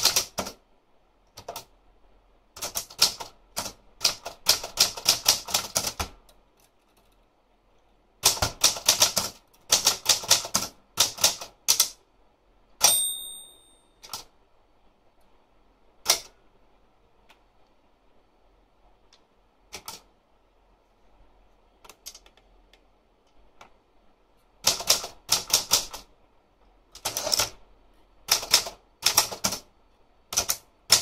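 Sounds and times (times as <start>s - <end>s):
typewriter keys clacking: 0.0s - 0.6s, 24.6s - 26.1s, 27.0s - 27.6s, 28.3s - 29.6s, 30.3s - 31.0s
typewriter bell ringing: 12.8s - 14.0s.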